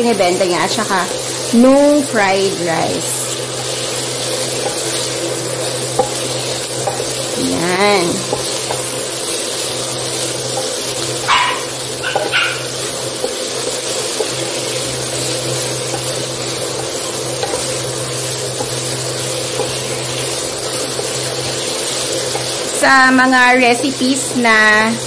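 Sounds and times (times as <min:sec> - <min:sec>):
food sizzling in a frying pan: 0:00.0 - 0:25.0
wooden spatula stirring: 0:03.4 - 0:22.8
short high-pitched yelps: 0:11.3 - 0:12.7.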